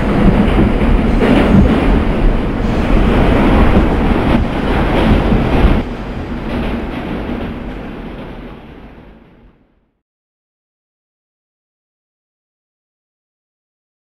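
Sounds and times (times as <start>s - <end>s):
subway train wheels rumbling on rail: 0.0s - 10.0s.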